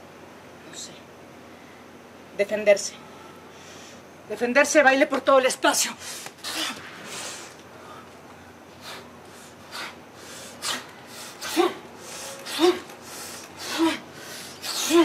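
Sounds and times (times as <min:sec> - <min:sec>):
woman breathing hard: 0:07.0 - 0:15.0
woman grunting: 0:11.4 - 0:12.9, 0:13.6 - 0:15.0.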